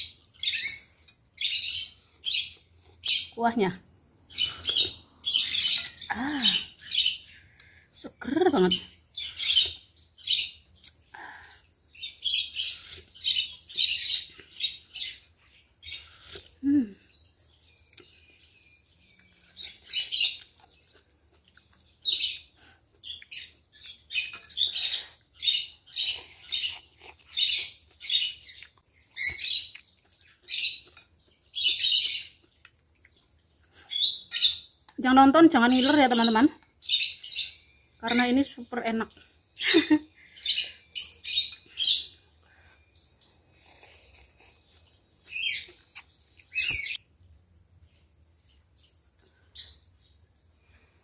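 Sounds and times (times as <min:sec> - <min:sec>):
slurping noodles and broth: 0:43.4 - 0:44.8.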